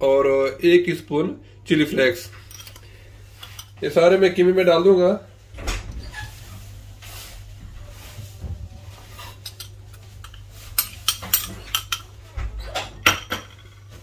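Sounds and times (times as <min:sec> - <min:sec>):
low steady hum: 0:00.0 - 0:14.0
glass dish and utensils clinking: 0:09.4 - 0:12.2, 0:12.8 - 0:14.0.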